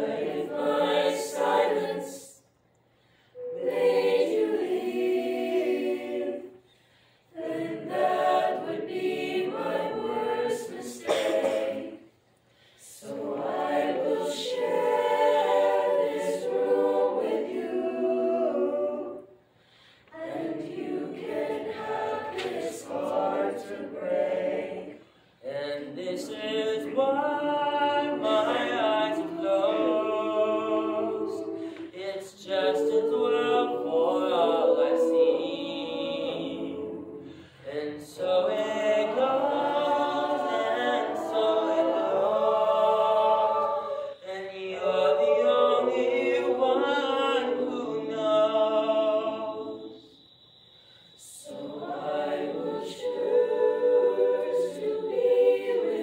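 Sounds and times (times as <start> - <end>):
mixed choir singing a cappella: 0.0 - 56.0.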